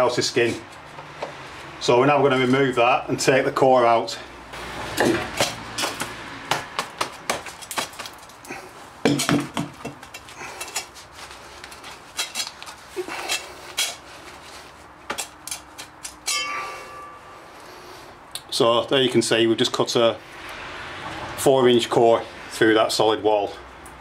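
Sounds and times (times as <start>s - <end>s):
metallic clinks and knocks: 15.5s - 17.5s.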